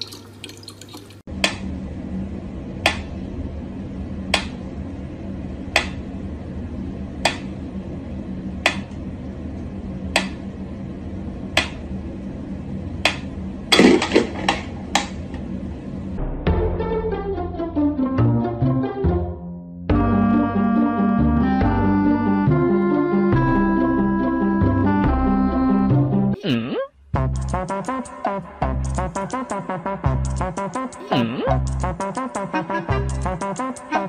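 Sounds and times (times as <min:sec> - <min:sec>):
faint running tap water: 0:00.0 - 0:01.3
steady low hum: 0:01.2 - 0:16.6, 0:19.9 - 0:34.0.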